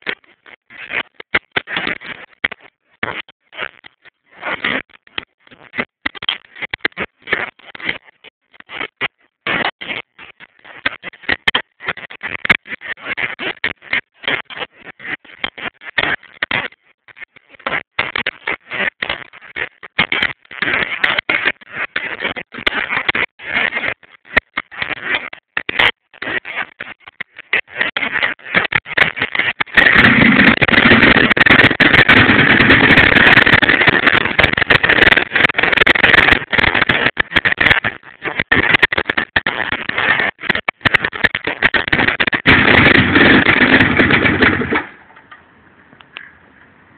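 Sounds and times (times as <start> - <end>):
rock drill hammering stone: 29.9 - 34.8, 42.0 - 44.9.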